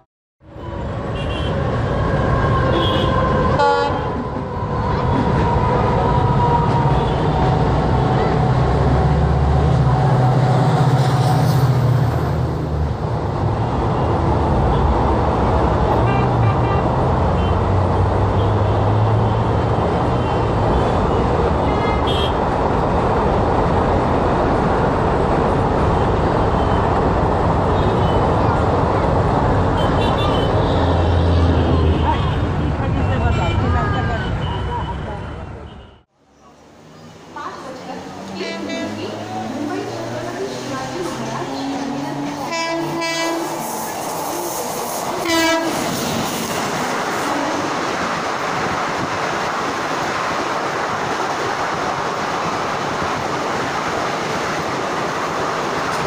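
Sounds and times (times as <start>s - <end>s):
diesel locomotive engine and wheels: 0.0s - 56.0s
passenger train rolling past: 0.6s - 21.7s, 22.4s - 33.2s, 36.2s - 56.0s
train horn toot: 2.6s - 4.2s, 42.4s - 43.6s, 45.2s - 45.8s.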